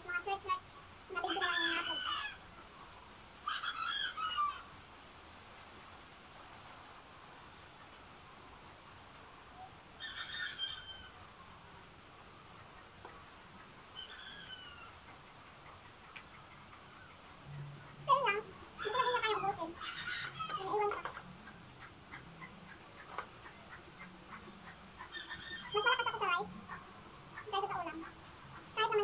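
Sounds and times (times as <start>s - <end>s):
chickens calling: 0.0s - 29.0s
faint high chirping: 0.0s - 29.0s.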